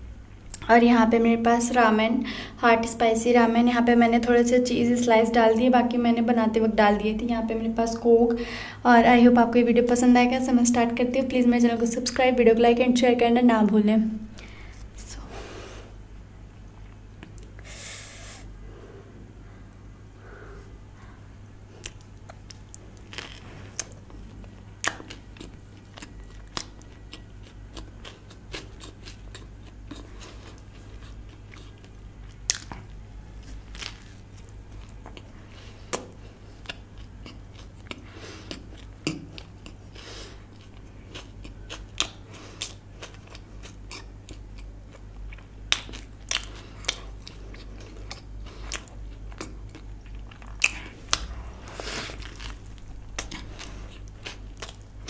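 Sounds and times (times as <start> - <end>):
steady low hum: 0.0 - 55.0
chewing and biting: 21.8 - 55.0.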